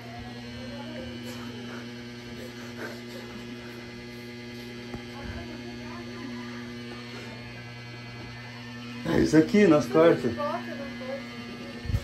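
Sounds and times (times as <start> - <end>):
low hum of held tones: 0.0 - 12.0.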